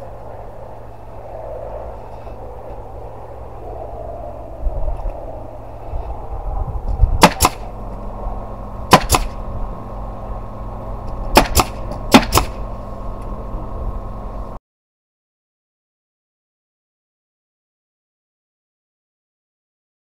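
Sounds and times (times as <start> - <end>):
steady low rumble: 0.0 - 14.6
nail gun firing into wood: 7.2 - 7.7, 8.9 - 9.4, 11.3 - 12.6.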